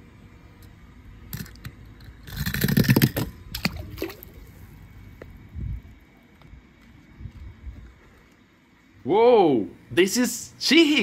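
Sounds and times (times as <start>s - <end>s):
toy car clicking on wooden ramp: 1.3s - 3.4s
water sloshing: 3.0s - 4.6s.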